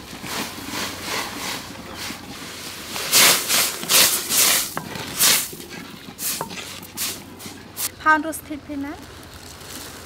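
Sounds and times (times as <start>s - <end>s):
wooden spoon stirring broth: 0.1s - 8.0s
hissing splashing strokes: 0.3s - 7.9s.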